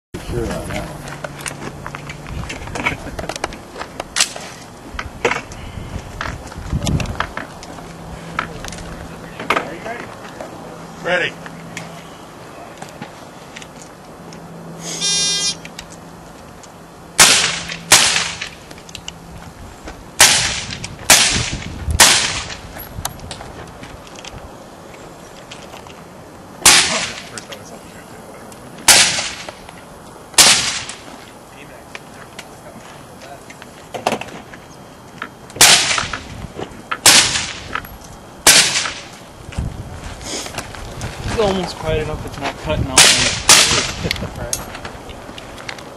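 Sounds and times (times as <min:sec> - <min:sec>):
suppressed gunshots: 0:38.4 - 0:39.0.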